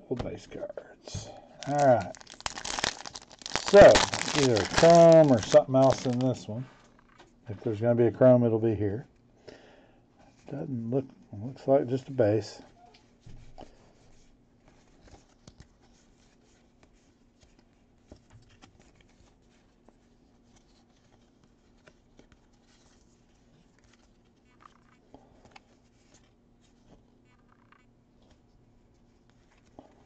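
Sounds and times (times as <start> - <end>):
faint steady hum: 0.0 - 30.0
cards being flipped through: 1.6 - 7.3.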